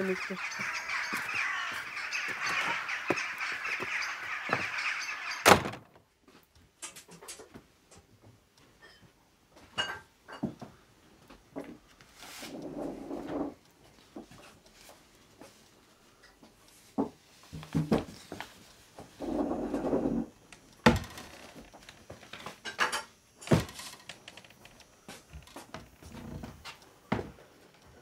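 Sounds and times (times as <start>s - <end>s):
crows cawing: 0.0s - 5.4s
other birds: 0.0s - 5.6s.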